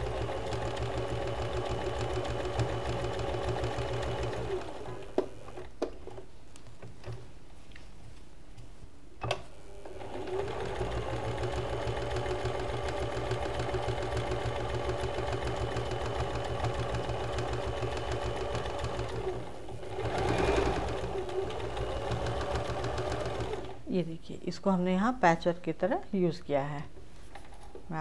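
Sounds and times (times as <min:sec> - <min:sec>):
sewing machine stitching: 0:00.0 - 0:05.7, 0:09.8 - 0:23.8.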